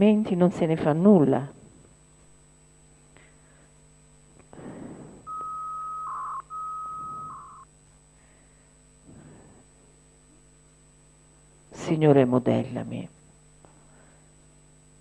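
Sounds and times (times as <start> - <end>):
low electrical hum: 0.0 - 15.0
soft breathy puffs: 4.5 - 5.3
high electronic beeps: 5.3 - 7.7.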